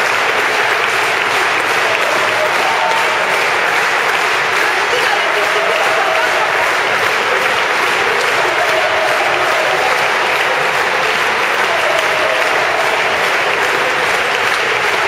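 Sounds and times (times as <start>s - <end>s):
crowd applauding: 0.0s - 15.0s
voices: 0.0s - 15.0s.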